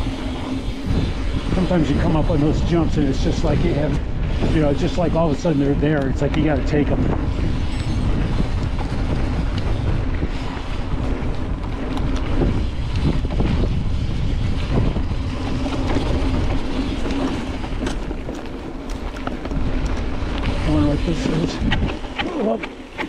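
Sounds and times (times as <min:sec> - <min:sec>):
bike chain and frame rattling: 0:00.0 - 0:23.0
bike tyres rumbling on dirt: 0:00.0 - 0:23.0
wind buffeting microphone: 0:00.0 - 0:23.0.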